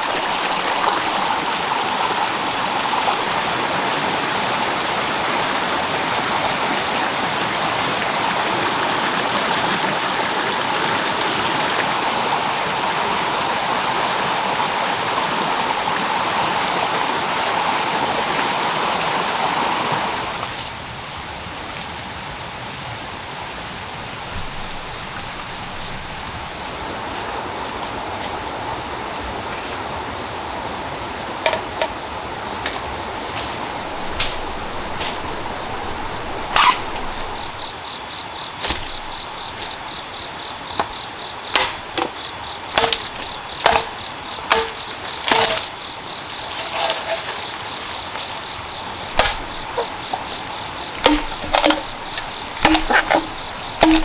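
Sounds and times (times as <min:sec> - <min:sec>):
steady background hiss: 0:00.0 - 0:54.0
machete chopping bamboo: 0:41.5 - 0:42.2, 0:42.8 - 0:45.7, 0:49.1 - 0:50.3, 0:51.0 - 0:54.0.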